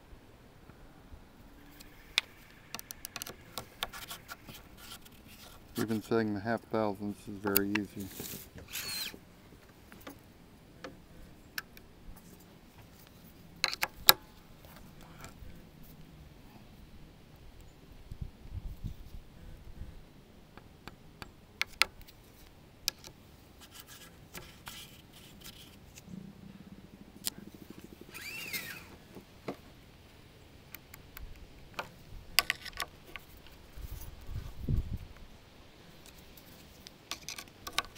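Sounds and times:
brief metal scrape: 0:08.0 - 0:09.2
small metal clicks and taps: 0:37.1 - 0:37.9.

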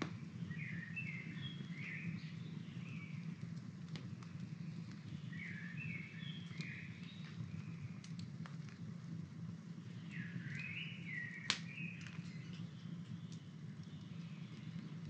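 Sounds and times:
campfire crackling and snapping: 0:00.0 - 0:15.0
songbird singing: 0:00.1 - 0:03.5, 0:04.3 - 0:08.1, 0:09.4 - 0:15.0.

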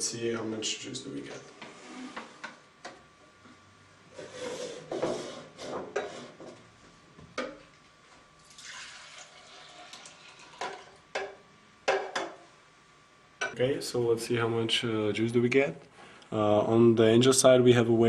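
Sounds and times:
juice pouring and sloshing: 0:08.4 - 0:10.9.

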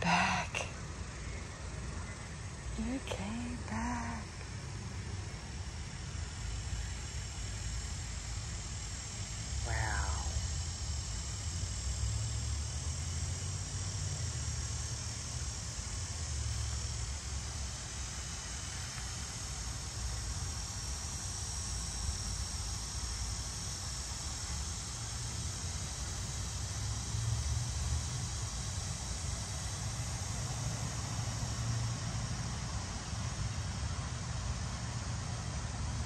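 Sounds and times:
high-pitched insect chorus: 0:00.0 - 0:36.0.

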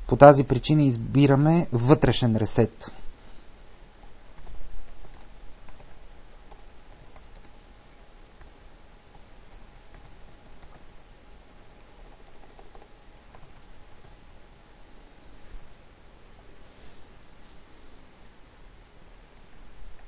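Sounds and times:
background hiss: 0:00.0 - 0:20.0
keyboard typing clicks: 0:04.0 - 0:07.7, 0:08.4 - 0:10.9, 0:11.8 - 0:14.4.

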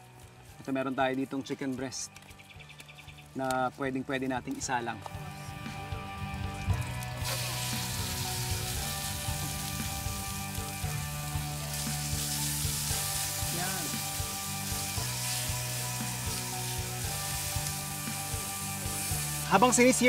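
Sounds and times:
chicken sizzling on a griddle: 0:06.8 - 0:20.0.

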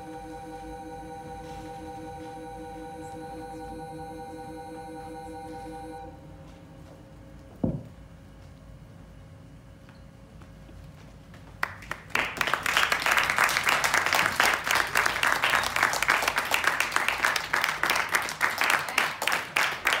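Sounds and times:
small audience applauding: 0:11.5 - 0:20.0.

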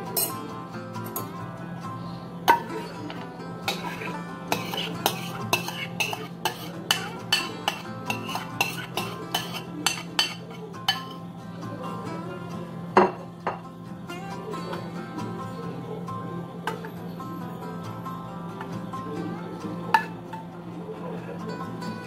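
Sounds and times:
background music: 0:00.0 - 0:22.0
metal spoon scraping a bowl: 0:02.5 - 0:11.2.

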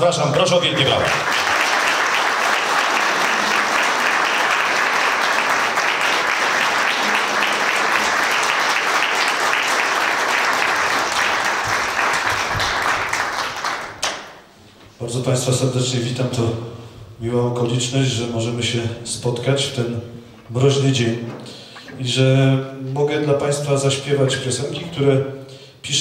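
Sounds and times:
audience applauding: 0:00.3 - 0:14.4.

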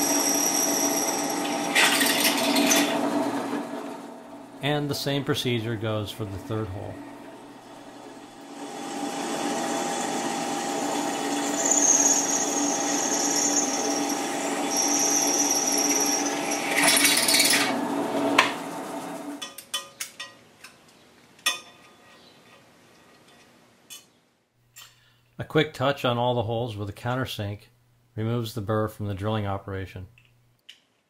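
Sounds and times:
high-pitched drill bit squeal: 0:00.0 - 0:02.0, 0:11.3 - 0:17.6
drill press boring through aluminum: 0:00.0 - 0:04.2, 0:07.8 - 0:17.8.

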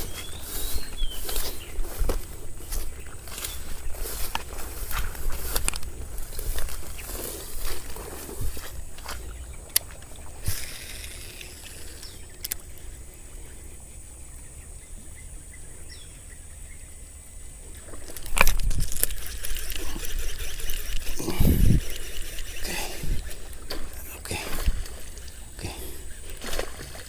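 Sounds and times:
fish splashing and thrashing: 0:00.0 - 0:13.0, 0:17.8 - 0:27.0
faint clicks: 0:09.7 - 0:12.9.

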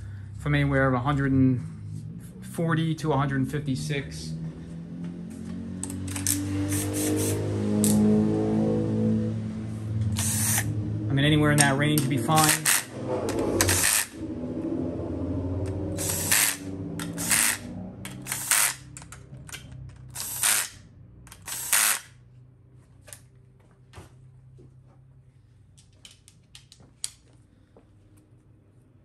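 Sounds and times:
cordless driver motor whirring: 0:05.8 - 0:08.0, 0:10.1 - 0:10.7, 0:12.3 - 0:14.2, 0:15.7 - 0:19.2, 0:20.1 - 0:22.2
harsh driver bursts: 0:06.1 - 0:08.0, 0:10.0 - 0:14.2, 0:15.9 - 0:18.9, 0:20.1 - 0:22.2.

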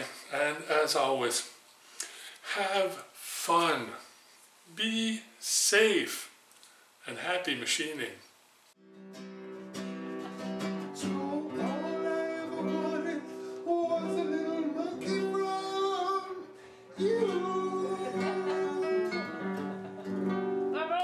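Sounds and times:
acoustic guitar: 0:08.8 - 0:21.0
man singing: 0:11.0 - 0:19.6, 0:20.7 - 0:21.0.

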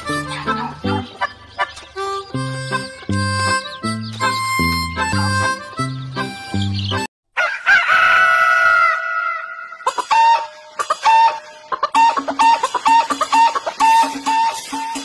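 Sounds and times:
bouncy music track: 0:00.0 - 0:07.1, 0:10.9 - 0:15.0
rooster crowing: 0:07.4 - 0:11.4.

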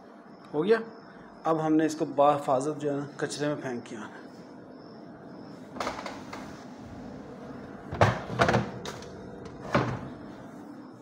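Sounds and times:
trash bin lid knocking shut: 0:09.6 - 0:10.1.

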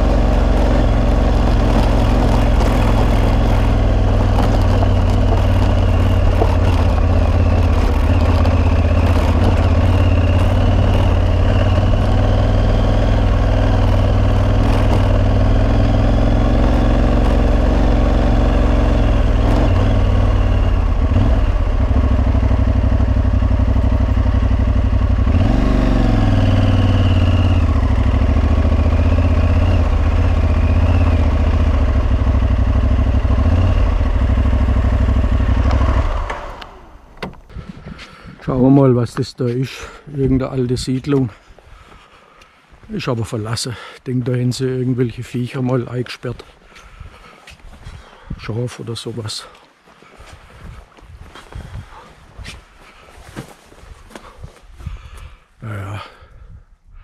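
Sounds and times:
motorcycle engine running: 0:00.0 - 0:38.0.

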